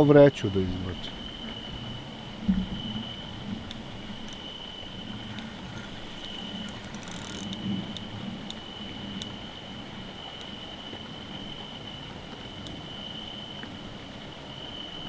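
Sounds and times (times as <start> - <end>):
high-pitched whine: 0.0 - 13.8
fishing reel clicking: 3.7 - 4.4, 5.3 - 8.6.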